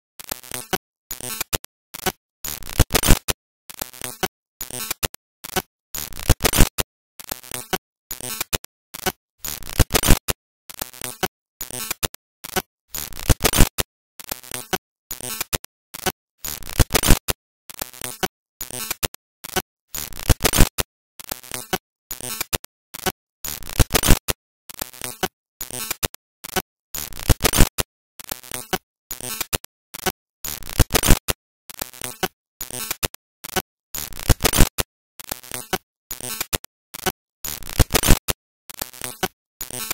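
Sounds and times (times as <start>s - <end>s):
crackling static bursts: 6.0s - 6.7s, 9.4s - 10.3s, 12.9s - 13.7s, 16.4s - 17.3s, 20.0s - 20.7s, 27.2s - 27.7s, 30.6s - 31.3s, 34.0s - 34.7s, 37.5s - 38.3s.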